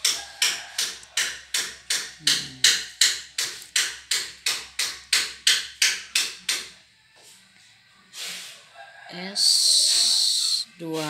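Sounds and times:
evenly spaced sharp knocks: 0.0 - 6.6.

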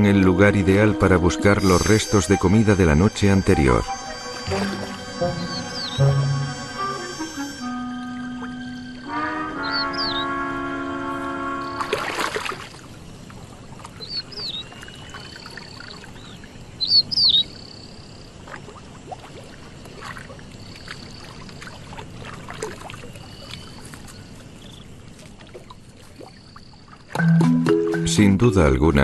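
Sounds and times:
low outdoor ambience: 0.0 - 29.0
birds whistling and chirping: 1.4 - 10.5, 14.0 - 17.8, 23.0 - 24.9
faint splashes in water: 11.6 - 27.2.

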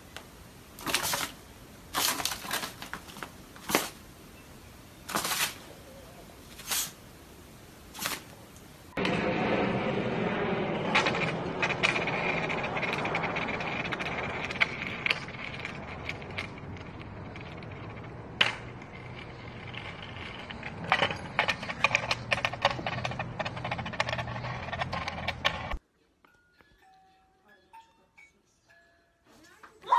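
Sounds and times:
skateboard wheels rolling on concrete: 7.8 - 25.8
skateboard clicks and rattles: 10.8 - 25.8.

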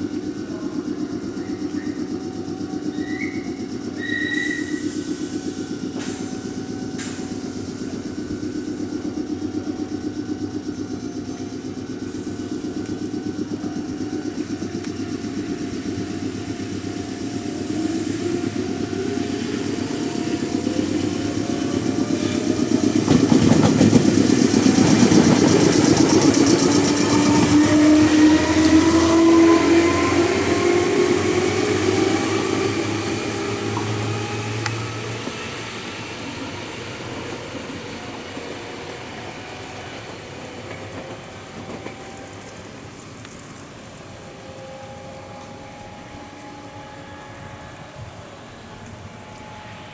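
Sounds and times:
electric train motor whine: 0.0 - 49.9.

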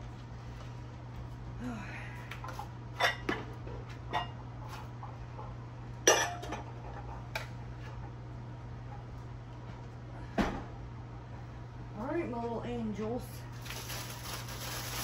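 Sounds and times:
steady low hum: 0.0 - 15.0
mixing bowls knocking and clinking: 3.0 - 8.1.

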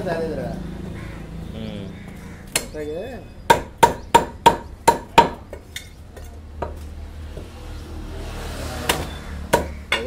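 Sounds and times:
meat cleaver chopping on wood: 3.5 - 5.5.

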